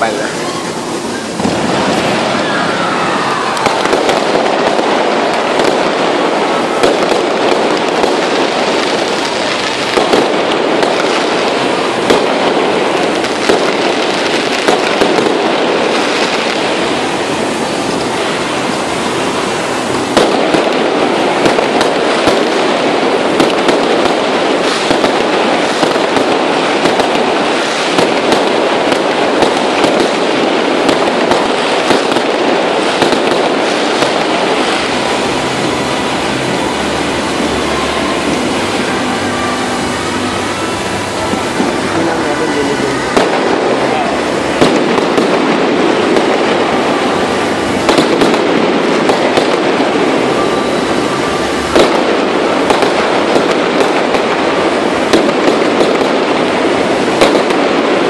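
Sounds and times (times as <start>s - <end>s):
fireworks crackling: 0.0s - 58.0s
sharp firework pops: 3.5s - 17.2s, 20.0s - 35.0s, 43.0s - 46.5s, 47.7s - 50.0s, 51.7s - 56.6s, 57.2s - 58.0s.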